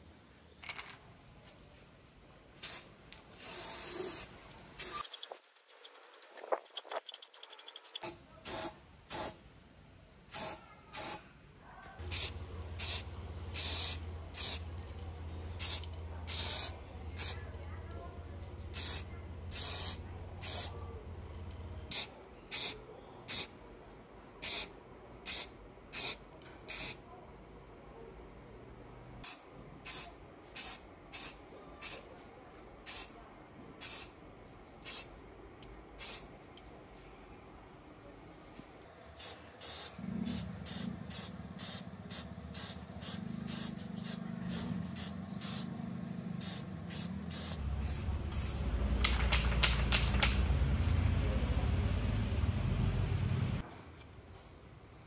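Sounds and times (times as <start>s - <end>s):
aerosol spray can hissing: 2.6s - 9.4s, 12.0s - 14.6s, 15.6s - 17.4s, 18.8s - 20.7s, 39.2s - 45.7s, 46.4s - 48.6s.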